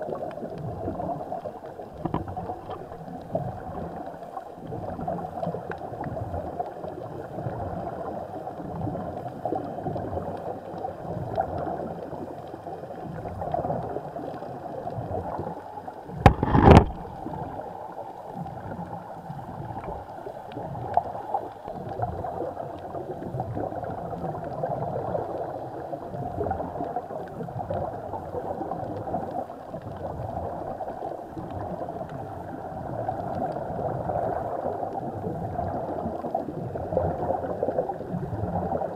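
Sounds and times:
underwater gurgling and bubbles: 0.0 - 38.9
loud knock: 16.3 - 17.0.

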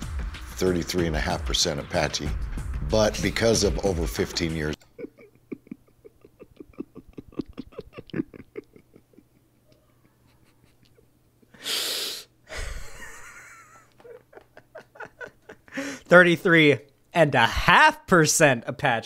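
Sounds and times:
man laughing breathily: 4.9 - 11.9, 12.5 - 16.1
man gasping for breath: 15.7 - 16.1.

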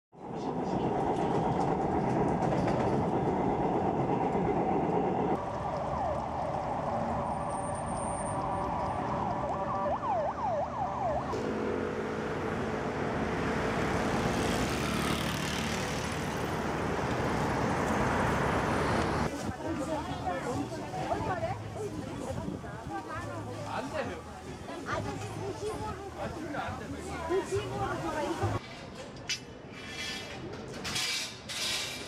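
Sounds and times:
city street traffic: 0.1 - 32.0
rail car humming: 0.2 - 10.2, 11.3 - 19.3.

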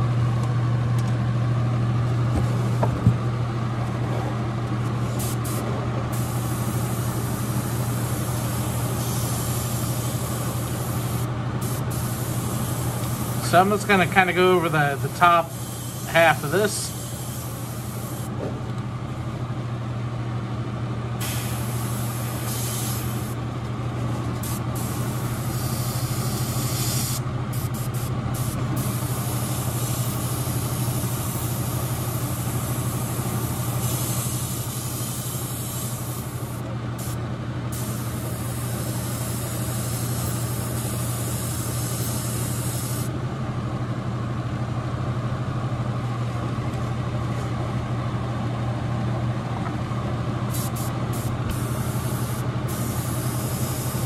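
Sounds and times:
exhaust fan humming: 0.0 - 54.0
airbrush spraying hiss: 5.2 - 13.6, 15.4 - 18.3, 21.2 - 23.4, 24.4 - 32.5, 33.4 - 43.1, 50.5 - 54.0.

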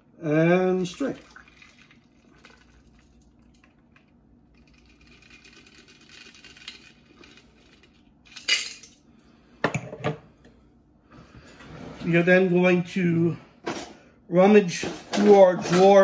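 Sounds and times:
liquid trickling into glass: 1.1 - 3.8
metal and ice clinking: 6.0 - 9.0.

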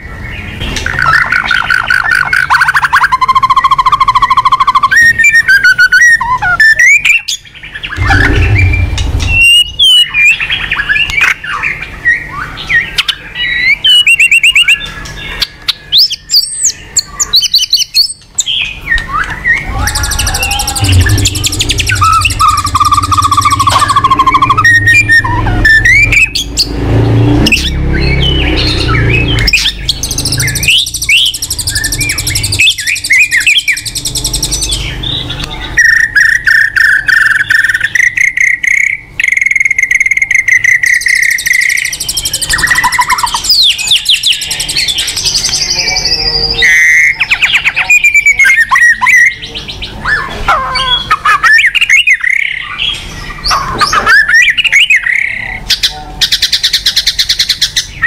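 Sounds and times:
bird singing whistles and trills: 0.3 - 58.0
low rumble: 8.0 - 10.4, 19.6 - 29.5.

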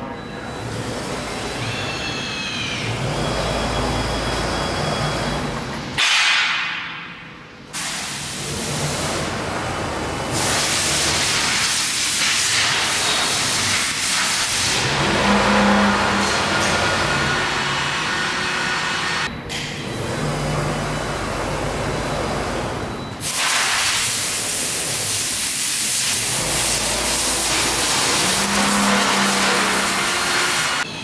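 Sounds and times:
motor whines gliding in pitch: 14.7 - 19.3, 26.3 - 30.9.

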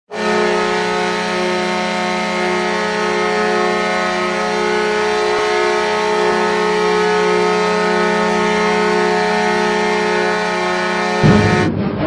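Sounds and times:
hockey goal horn blasting: 0.1 - 11.7.

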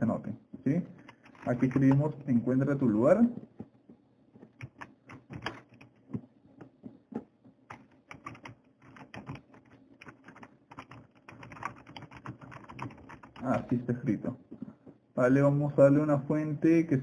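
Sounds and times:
computer keyboard typing: 1.0 - 2.4, 4.6 - 6.0, 7.7 - 13.8.

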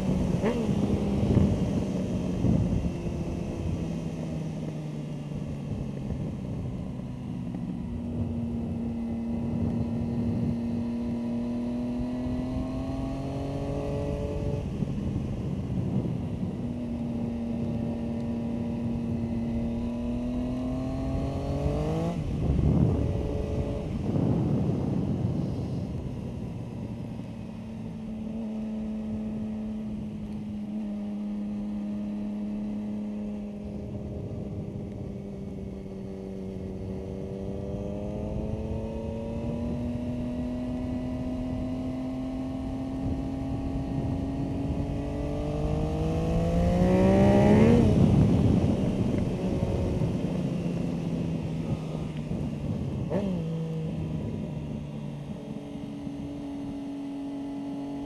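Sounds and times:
motorcycle engine at speed: 0.0 - 58.0.

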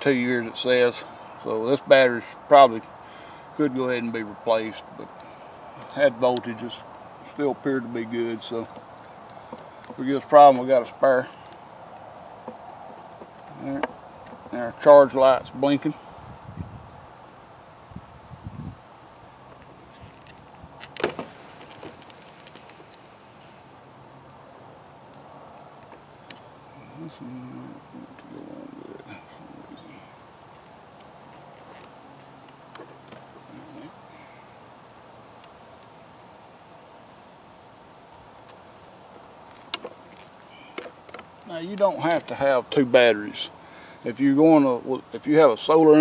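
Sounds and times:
insects chirring: 0.0 - 46.0.

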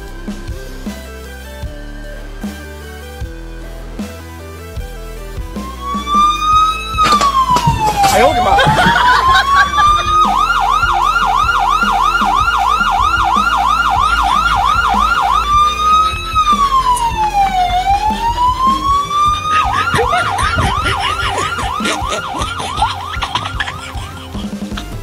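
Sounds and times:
electronic police siren: 5.5 - 24.7.

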